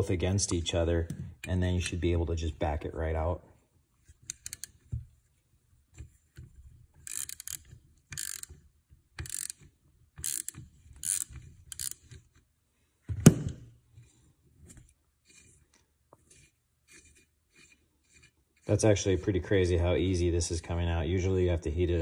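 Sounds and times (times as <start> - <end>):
ratchet wrench clicking: 4.3 - 4.8, 7.0 - 8.6, 9.2 - 12.2.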